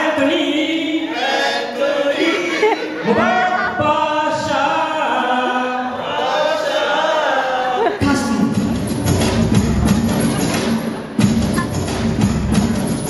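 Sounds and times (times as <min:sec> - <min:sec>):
man singing into microphone: 0:00.0 - 0:05.9
group of men singing: 0:00.0 - 0:08.5.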